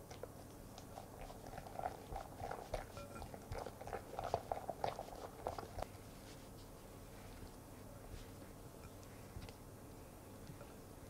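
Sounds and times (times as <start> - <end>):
whisk squelching in ganache: 0.0 - 5.9.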